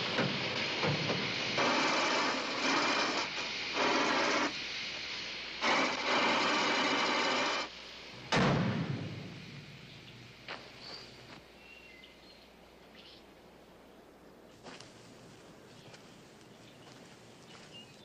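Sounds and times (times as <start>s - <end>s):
steam hissing from engine: 0.0s - 11.7s.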